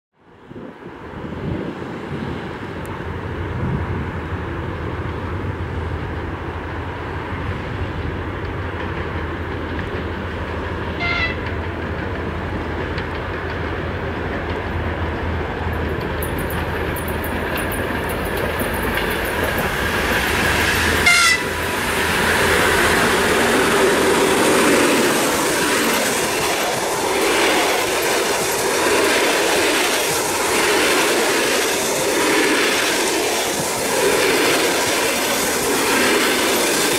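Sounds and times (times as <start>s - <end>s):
electric locomotive humming: 0.4s - 36.9s
train coaches rumbling: 0.4s - 36.9s
wheels clacking over rail joints: 7.9s - 36.9s
train horn toots: 10.9s - 11.5s, 21.0s - 21.6s.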